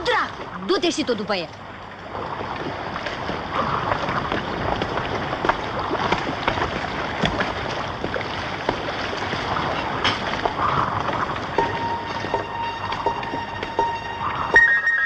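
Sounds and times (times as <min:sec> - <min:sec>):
sea: 0:00.0 - 0:15.0
wind: 0:00.0 - 0:15.0.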